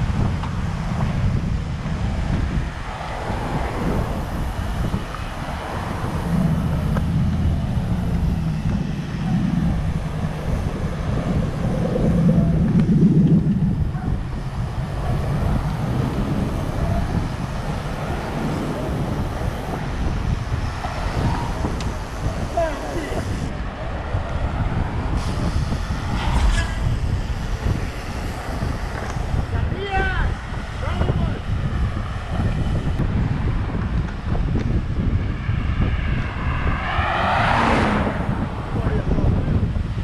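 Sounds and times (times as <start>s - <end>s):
road traffic rumble: 0.0s - 40.0s
vehicles passing: 0.0s - 40.0s.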